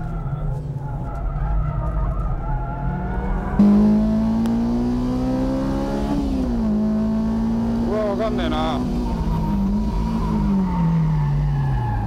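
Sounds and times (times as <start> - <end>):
race car engine at high revs: 2.6 - 11.7.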